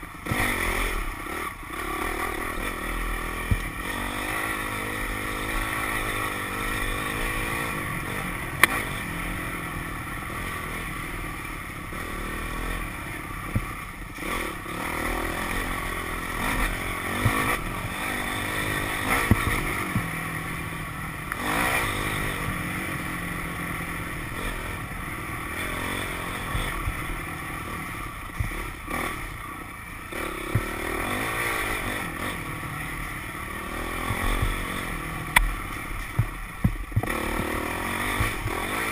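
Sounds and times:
dirt bike engine revving: 0:00.0 - 0:38.9
bike clattering over bumps: 0:17.0 - 0:18.0, 0:18.7 - 0:20.2, 0:34.0 - 0:38.9.

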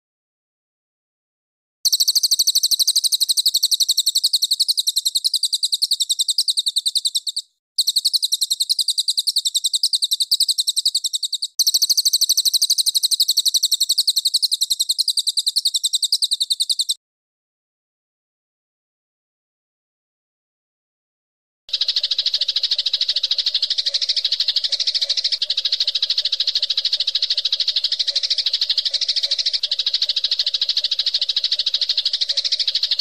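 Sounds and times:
songbird rapid trill: 0:01.9 - 0:17.0, 0:21.7 - 0:33.0.

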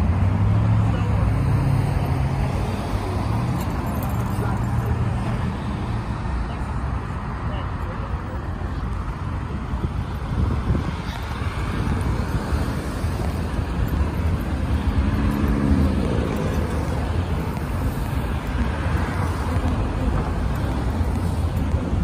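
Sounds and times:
traffic rumble: 0:00.0 - 0:22.0.

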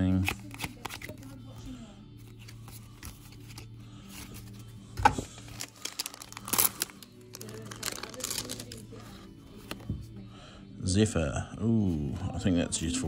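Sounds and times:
trading cards crinkling: 0:00.0 - 0:01.4, 0:02.2 - 0:09.8
faint background music: 0:00.0 - 0:13.0.

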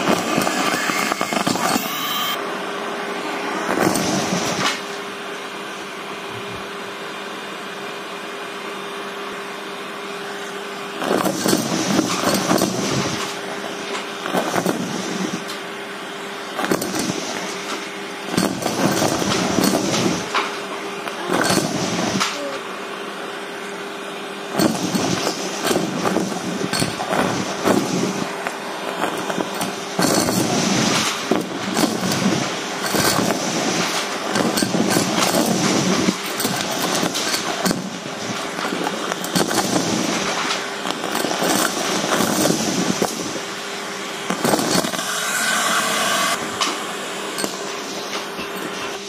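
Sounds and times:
debris rattling through metal tube: 0:29.1 - 0:43.2
vacuum cleaner motor hum: 0:40.9 - 0:49.0.

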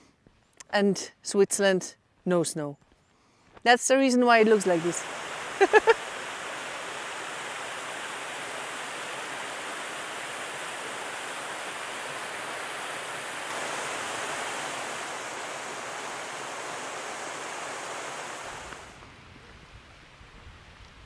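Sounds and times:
waterfall splashing over rocks: 0:04.3 - 0:19.2.

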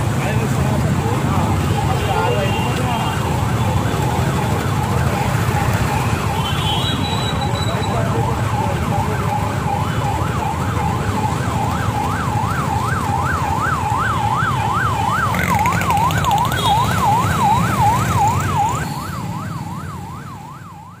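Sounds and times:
engine and traffic rumble: 0:00.0 - 0:21.0
police siren yelping: 0:07.7 - 0:21.0.

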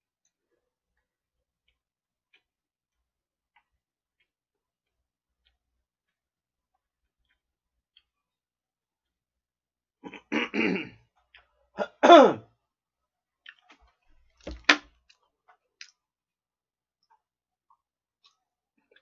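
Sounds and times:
man clearing throat and coughing: 0:10.0 - 0:11.0, 0:11.8 - 0:12.4.

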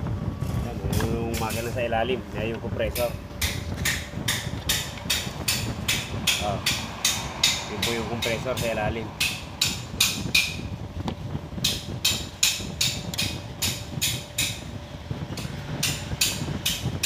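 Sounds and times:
rapid hammering: 0:03.0 - 0:10.7, 0:11.6 - 0:14.6, 0:15.4 - 0:17.0.

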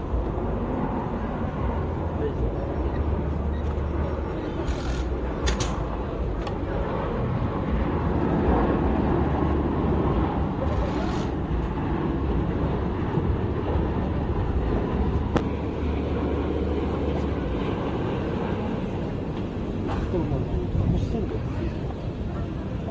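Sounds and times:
jet airliner engines rumbling: 0:00.0 - 0:22.9.

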